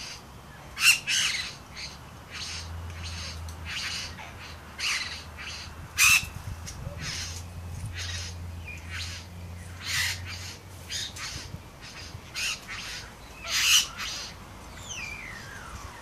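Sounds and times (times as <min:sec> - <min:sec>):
bird harsh display calls: 0:00.0 - 0:16.0.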